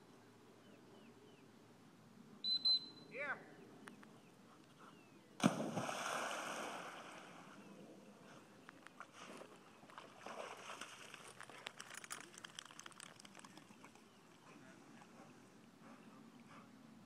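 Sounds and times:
dog splashing into water: 0:05.4 - 0:07.5, 0:09.9 - 0:13.9
small splashes and drips: 0:09.8 - 0:14.4.

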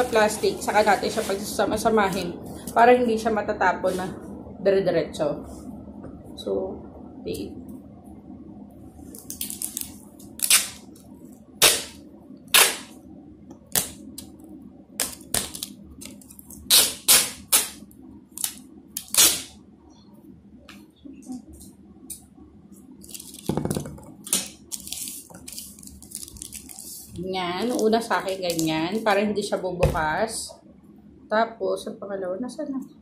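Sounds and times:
adhesive tape ripping: 0:09.3 - 0:10.8, 0:11.6 - 0:12.9, 0:15.0 - 0:17.8, 0:18.4 - 0:19.5
tape handling noises: 0:23.0 - 0:28.8.

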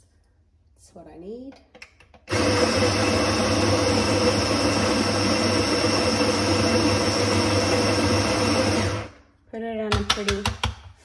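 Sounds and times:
coffee grinder whirring: 0:02.3 - 0:09.2.

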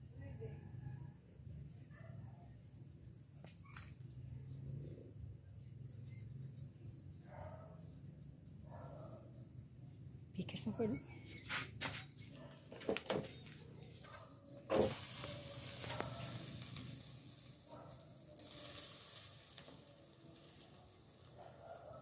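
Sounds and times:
molten metal sizzling and hissing: 0:14.6 - 0:22.0.

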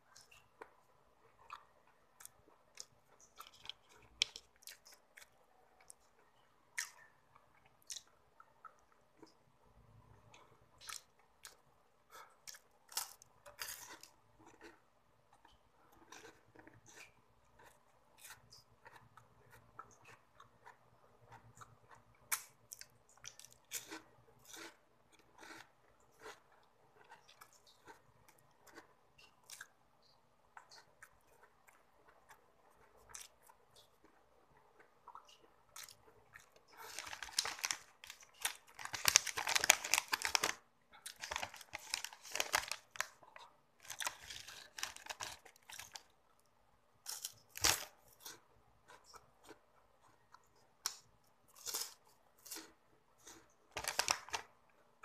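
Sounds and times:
chewing snacks: 0:00.1 - 0:54.6
plastic wrapper tearing and crinkling: 0:36.8 - 0:43.2, 0:43.8 - 0:46.0, 0:47.1 - 0:47.9, 0:53.8 - 0:54.5.

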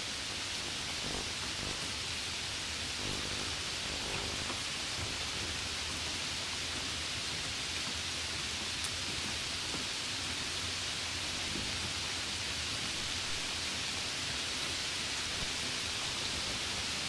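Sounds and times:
rain falling: 0:00.1 - 0:17.0
faint low hum: 0:00.9 - 0:02.0, 0:03.0 - 0:05.5, 0:11.2 - 0:11.9.

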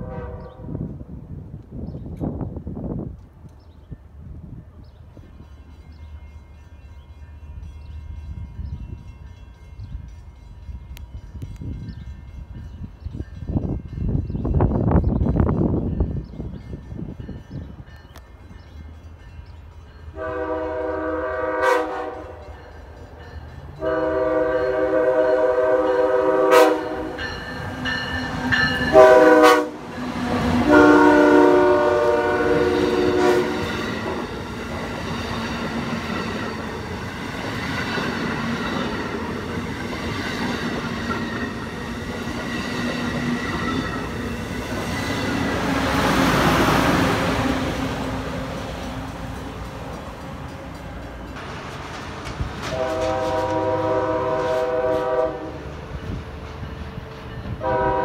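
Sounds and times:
train horn blasts: 0:00.0 - 0:01.0, 0:20.1 - 0:22.7, 0:23.8 - 0:34.2, 0:52.6 - 0:55.8, 0:57.6 - 0:58.0
train wheels roaring on rails: 0:00.0 - 0:58.0.

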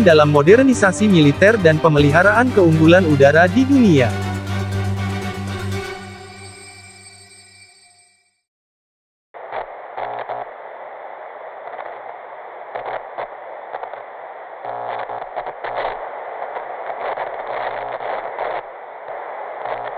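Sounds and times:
static hiss with crackles: 0:09.4 - 0:19.9.

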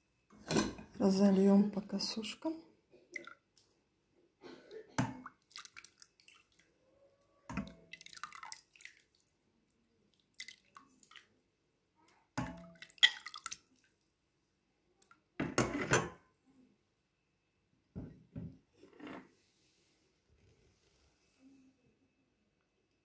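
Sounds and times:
liquid splashing and dripping: 0:03.1 - 0:03.7, 0:05.1 - 0:06.7, 0:07.5 - 0:09.3, 0:10.1 - 0:11.3, 0:12.4 - 0:14.0.

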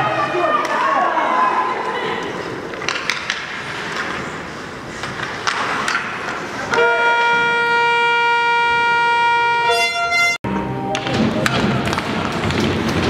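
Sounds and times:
ice rink horn blast: 0:06.7 - 0:10.8.

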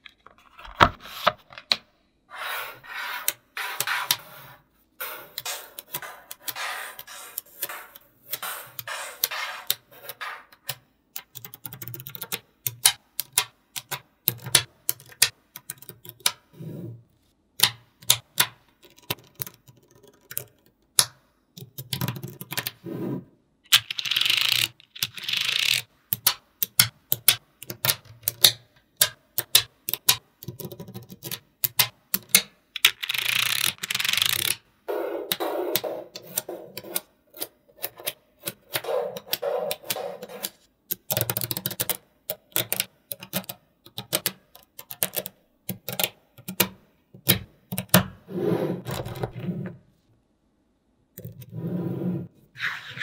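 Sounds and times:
magnetic balls clicking together: 0:23.7 - 0:34.6.

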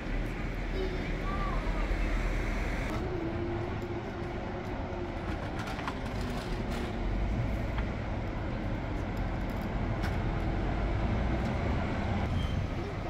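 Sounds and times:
bus engine whine: 0:00.0 - 0:13.0
street traffic rumble: 0:00.0 - 0:13.0.

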